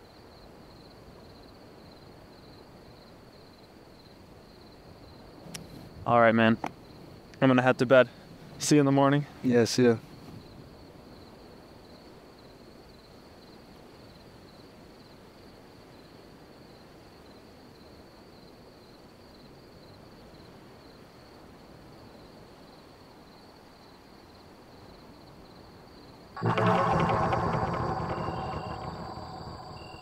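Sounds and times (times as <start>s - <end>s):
high pulsing insect trill: 26.4s - 30.0s.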